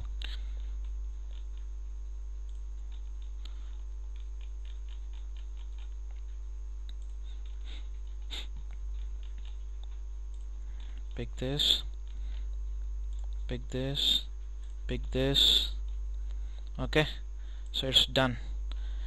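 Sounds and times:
computer mouse clicks: 0.0s - 1.7s, 2.4s - 11.2s
low electrical hum: 0.0s - 19.0s.

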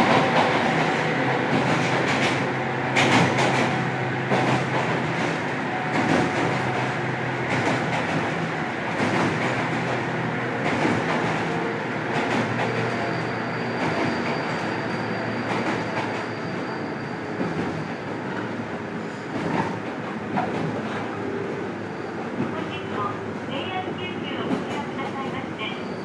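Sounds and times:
train wheels clicking over rail joints: 0.0s - 14.7s, 15.4s - 16.4s, 19.3s - 21.0s.

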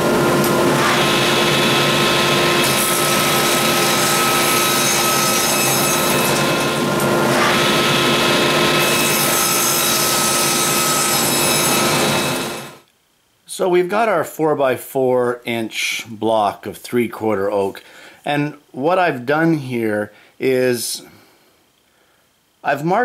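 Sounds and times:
table saw motor running: 0.0s - 12.8s
saw blade cutting wood: 0.4s - 12.8s.

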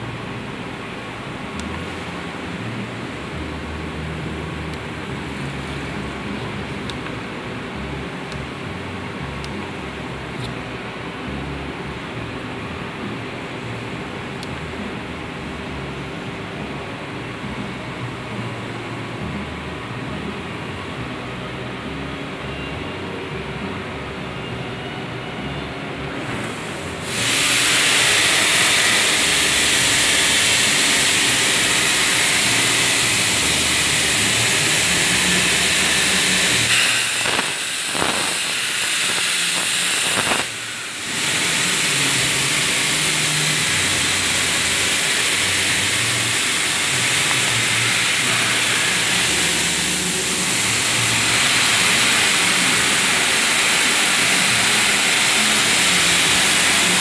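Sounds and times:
plasma cutter arc hissing: 26.2s - 57.0s.

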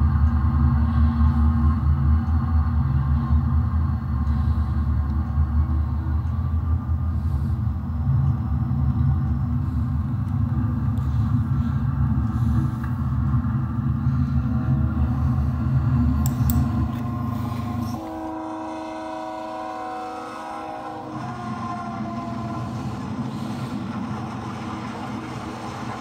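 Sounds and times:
locomotive engine rumble: 0.0s - 26.0s
multi-note air horn: 16.6s - 23.6s.

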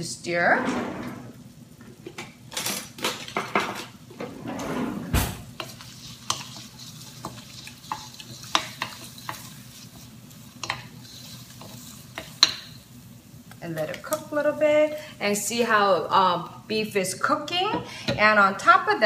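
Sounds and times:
utensil scraping against pot: 5.5s - 12.8s
beef sizzling in hot oil: 5.5s - 15.0s.

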